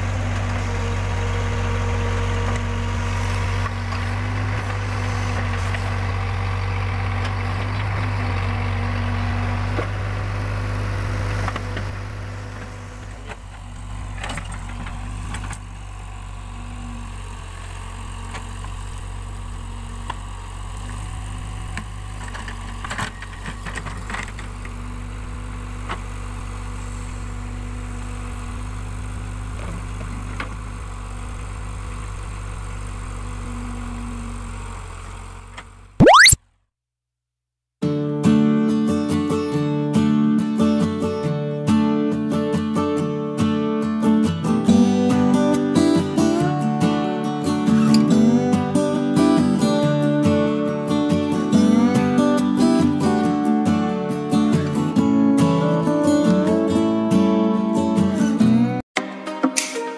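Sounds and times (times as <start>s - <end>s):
backhoe diesel engine running: 0.0s - 35.9s.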